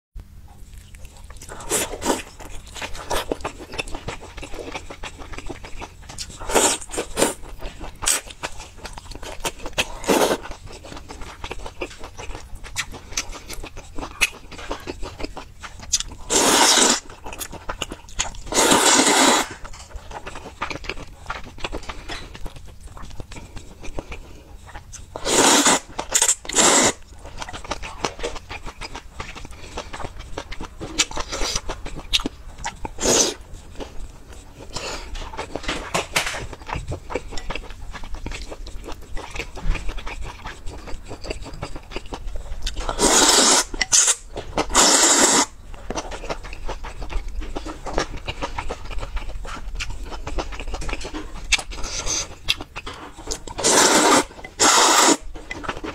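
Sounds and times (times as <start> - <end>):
wet chewing and smacking: 0.5 - 55.9
slurping noodles: 9.9 - 10.5, 16.2 - 17.1, 18.5 - 19.7, 25.2 - 27.0, 33.0 - 33.4, 42.9 - 45.5, 53.5 - 55.3.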